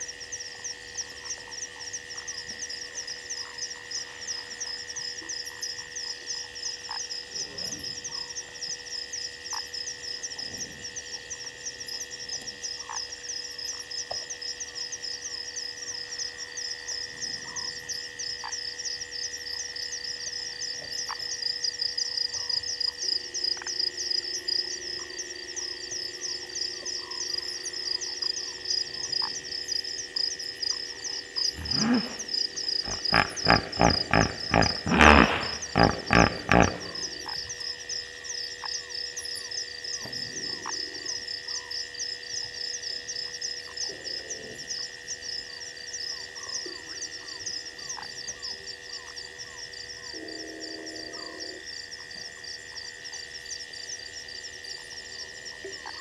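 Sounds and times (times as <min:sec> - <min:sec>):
short frog calls: 0:00.0 - 0:45.2
high insect drones: 0:00.0 - 0:56.0
low steady drone: 0:14.6 - 0:38.9.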